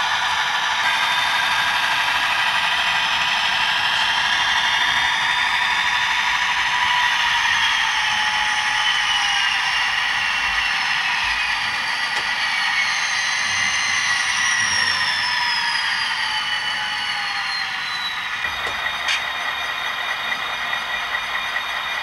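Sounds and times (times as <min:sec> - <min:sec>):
simulated diesel engine through small speaker: 0:00.0 - 0:22.0.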